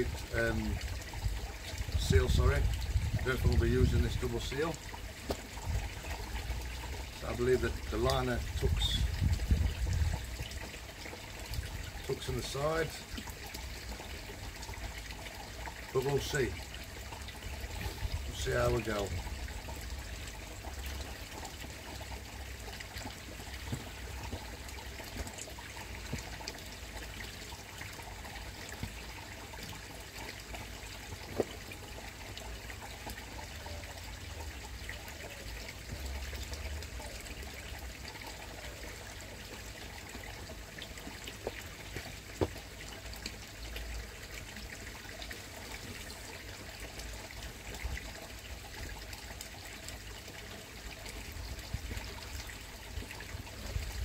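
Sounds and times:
pond water trickling: 0.0 - 54.0.

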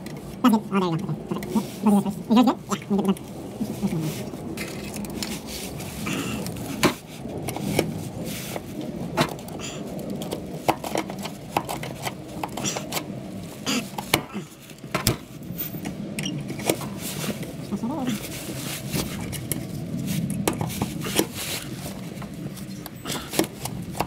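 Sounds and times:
low rumble: 0.0 - 24.0
hard objects clicking and knocking: 10.1 - 13.1, 14.0 - 16.9.

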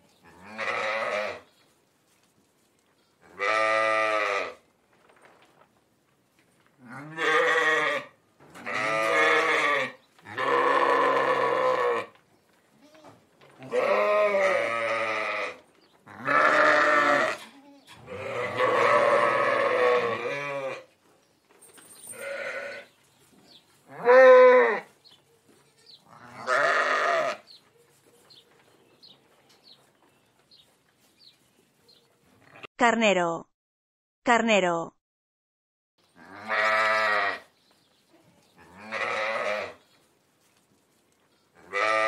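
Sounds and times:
sheep bleating: 0.2 - 1.4, 3.2 - 4.6, 6.8 - 12.1, 12.8 - 20.8, 22.2 - 22.9, 23.9 - 24.9, 25.6 - 27.5, 36.2 - 37.5, 38.6 - 39.8, 41.6 - 42.0.

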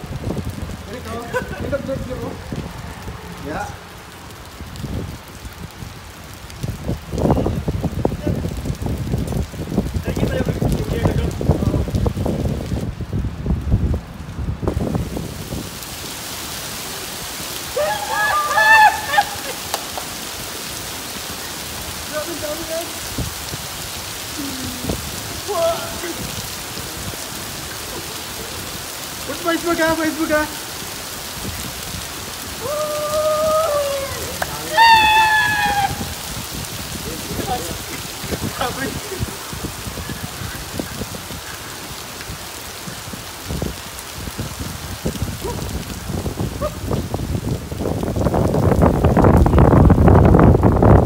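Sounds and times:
hail and heavy rain on pavement: 0.0 - 51.0.

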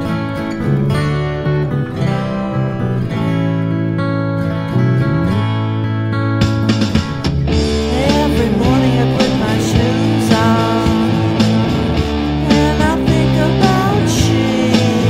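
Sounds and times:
rock music: 0.0 - 15.0.

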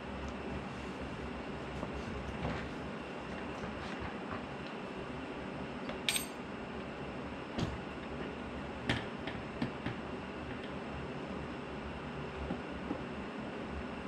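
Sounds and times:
steady low hum: 0.0 - 14.0
bright ringing clink: 6.1 - 6.4
hand tools clinking on metal: 6.1 - 6.4.

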